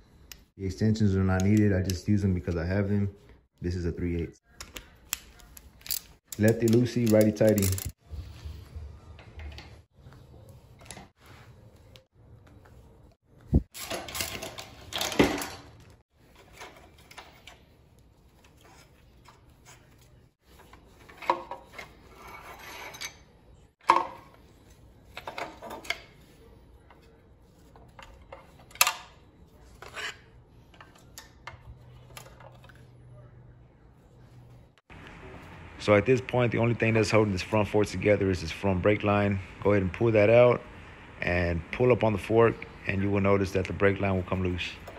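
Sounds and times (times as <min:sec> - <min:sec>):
metal and plastic parts clattering: 0:05.6 - 0:07.9, 0:13.8 - 0:17.6
ratchet and socket turning: 0:05.8 - 0:07.9.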